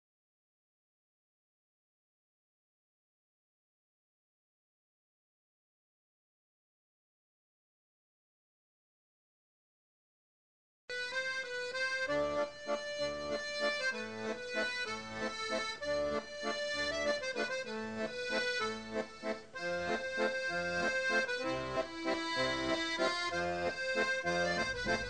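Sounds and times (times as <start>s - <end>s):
instrumental music with bass line: 10.9s - 25.0s.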